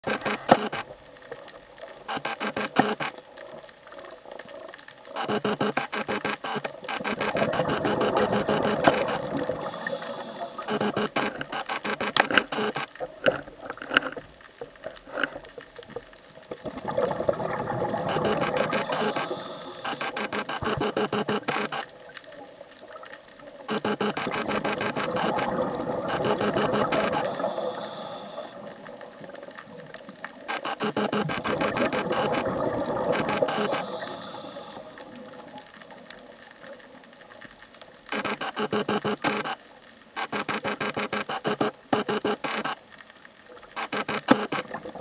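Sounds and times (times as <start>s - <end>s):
sharp clicks: 0.0s - 0.9s, 2.0s - 3.2s, 5.1s - 14.2s, 18.0s - 22.0s, 23.7s - 28.0s, 30.3s - 34.8s, 38.1s - 39.6s, 40.2s - 42.8s, 43.8s - 44.8s
exhaled bubbles crackling underwater: 0.0s - 45.0s.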